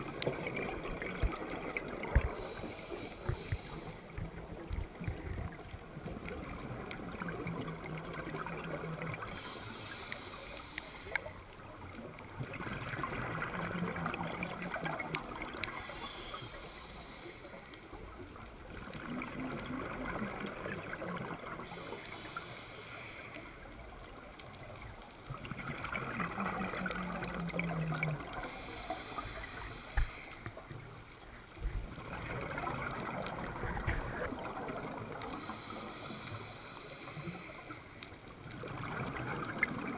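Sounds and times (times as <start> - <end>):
gurgling exhaled bubbles: 0.0 - 10.1, 12.0 - 16.0, 18.7 - 21.9, 25.3 - 30.0, 31.7 - 36.2, 38.4 - 39.9
hissing regulator inhale: 2.2 - 4.3, 9.2 - 11.4, 15.6 - 18.0, 21.6 - 23.8, 28.3 - 30.6, 35.2 - 38.1.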